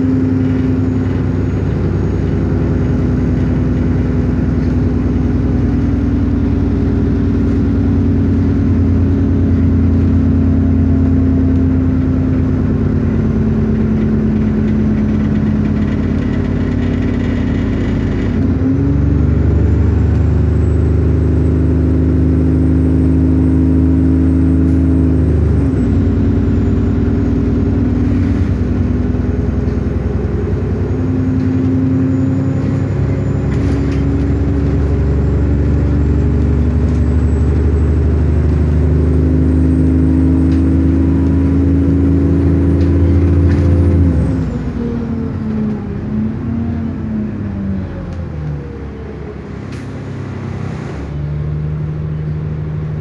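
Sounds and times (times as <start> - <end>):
bus engine hum from inside: 0.0 - 53.0.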